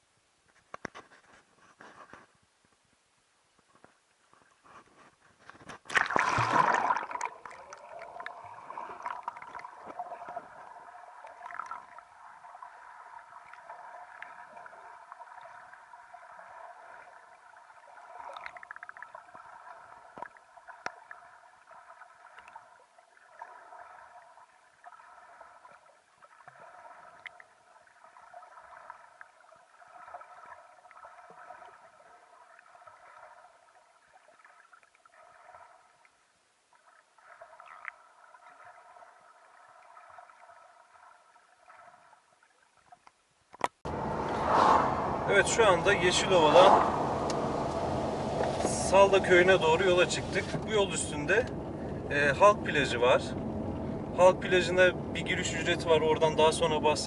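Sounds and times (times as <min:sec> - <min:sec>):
loud splash into water: 0:05.9 - 0:07.6
muffled underwater gurgling: 0:44.7 - 0:57.0.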